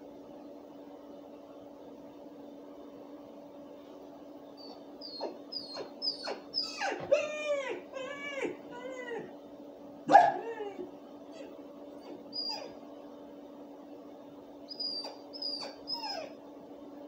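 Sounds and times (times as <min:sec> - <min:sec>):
dog whimpering: 0:04.6 - 0:09.4, 0:10.1 - 0:12.8, 0:14.7 - 0:16.4
dog barking: 0:10.1 - 0:10.7.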